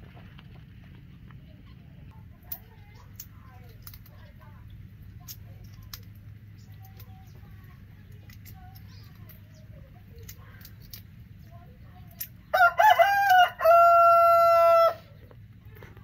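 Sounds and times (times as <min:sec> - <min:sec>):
rooster crowing: 0:12.5 - 0:15.1.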